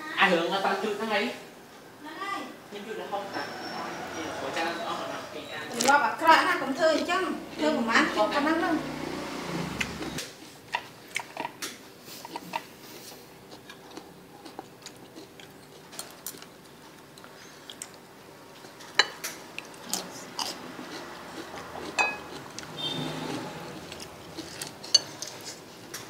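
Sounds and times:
biting and chewing: 9.7 - 26.0.

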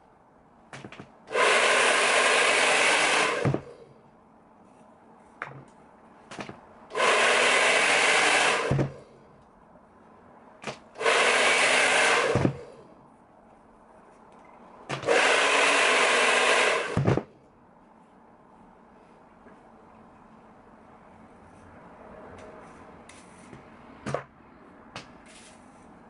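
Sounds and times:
hair dryer blowing: 1.3 - 3.7, 6.9 - 9.0, 11.0 - 12.7, 14.9 - 17.2.

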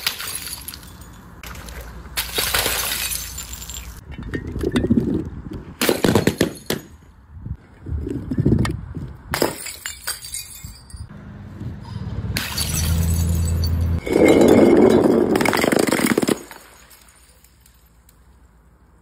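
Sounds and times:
glass clinking and scattering: 0.0 - 1.5, 2.2 - 4.5, 9.4 - 11.1, 12.4 - 17.9
glass bottles smashing on concrete: 0.0 - 4.0, 5.8 - 7.0, 9.3 - 11.1, 12.4 - 18.0.

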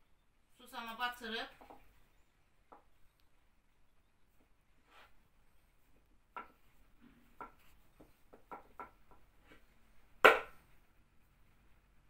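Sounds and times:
loud sharp knock: 10.2 - 10.6.

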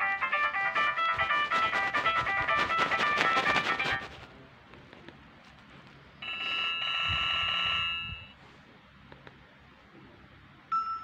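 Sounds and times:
phone ringtone: 6.2 - 8.3.

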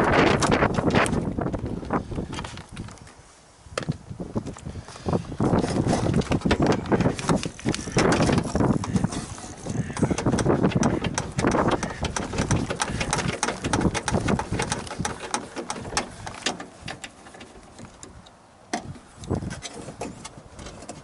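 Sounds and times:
handling rumble: 4.0 - 21.0
hand tools clicking and rattling: 5.6 - 18.2.

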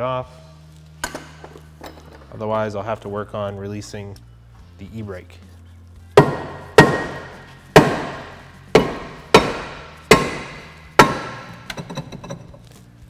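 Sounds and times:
hammer striking brake rotor: 6.2 - 12.5.

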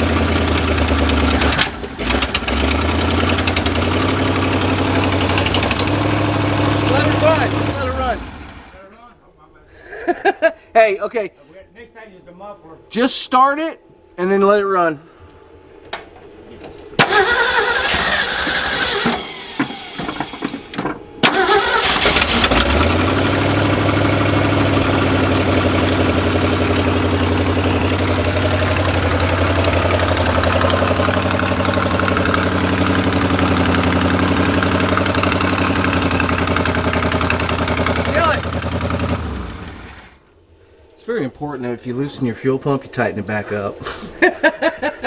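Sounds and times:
truck engine sputtering then idling: 0.0 - 8.8, 17.0 - 40.2.

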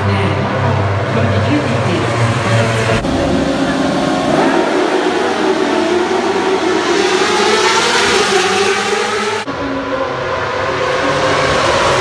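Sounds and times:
motorcycle engines revving: 0.0 - 12.0.

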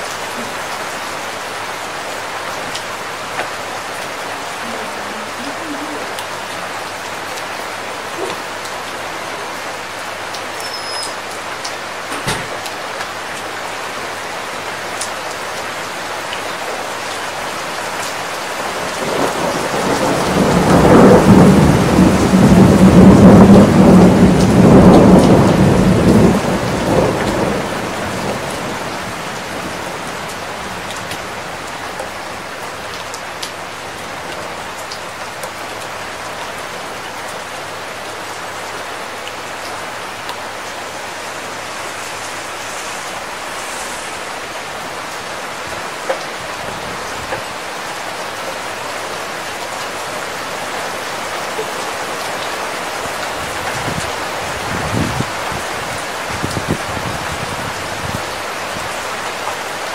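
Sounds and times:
steady rain falling: 0.0 - 59.9
thunder rolling: 19.0 - 28.8.

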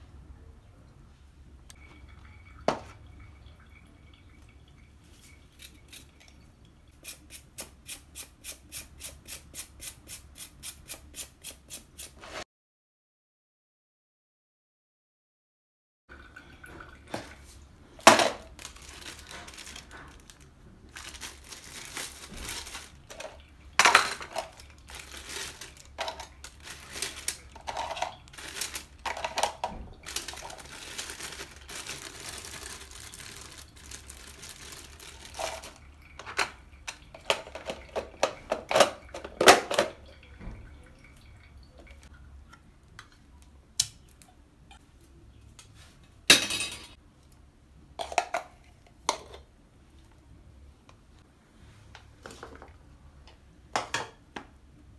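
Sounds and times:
rustling: 18.5 - 23.4, 24.0 - 35.8
kitchen clatter and knocks: 22.2 - 24.7, 25.4 - 30.6, 35.2 - 40.7, 46.3 - 47.0, 53.8 - 54.5.

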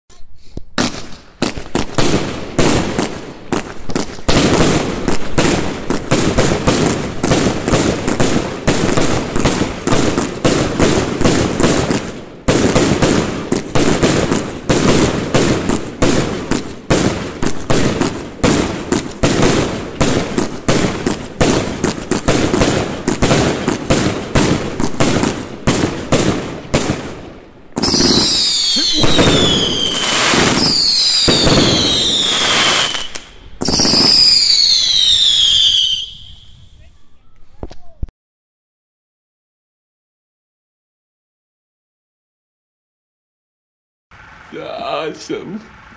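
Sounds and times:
fireworks launching and bursting: 0.6 - 38.1.

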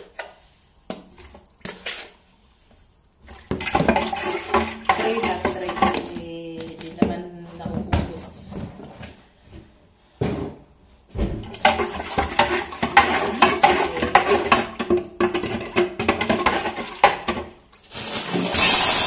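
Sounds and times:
utensil clattering in plastic pitcher: 3.4 - 8.2, 11.5 - 17.6.

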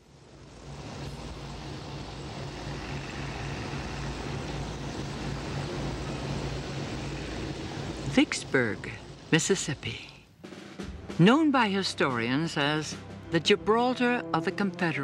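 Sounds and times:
low pulsing engine: 0.0 - 9.8
boat rushing through water: 0.6 - 9.8.

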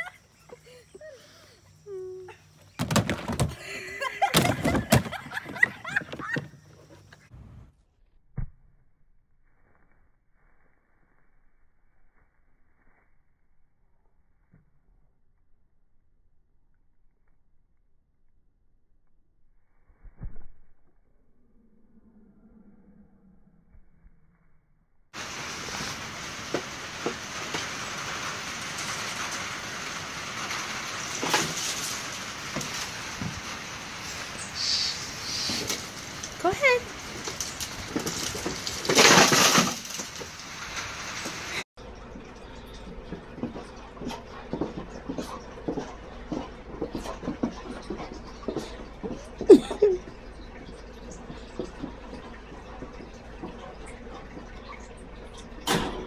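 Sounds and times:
rain on a wooden deck: 25.2 - 43.9.

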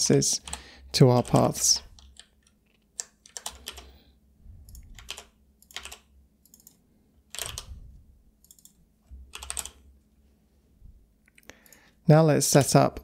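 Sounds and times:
computer keyboard typing: 0.0 - 4.0, 4.6 - 7.8, 8.4 - 9.8.

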